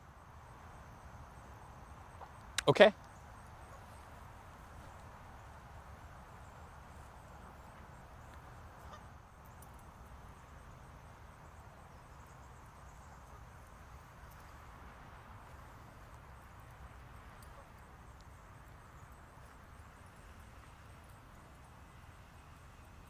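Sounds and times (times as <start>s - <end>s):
faint ticks: 15.8s - 23.0s.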